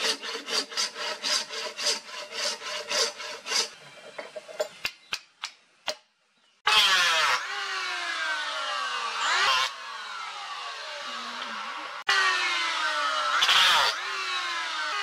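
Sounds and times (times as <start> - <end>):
electric hand planer: 0.0 - 4.1
hand saw cutting wood: 0.0 - 4.2, 13.2 - 14.1.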